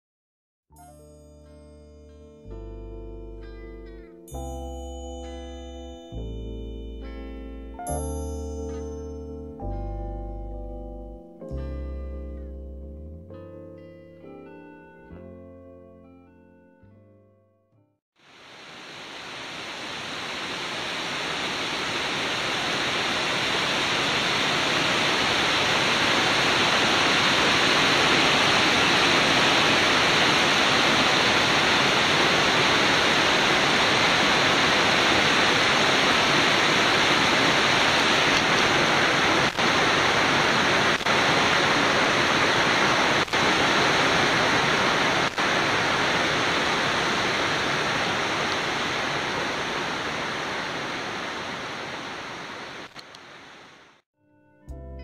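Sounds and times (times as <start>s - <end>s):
waterfall rushing: 18.2s - 54.0s
stream splashing over boulders: 18.4s - 53.8s.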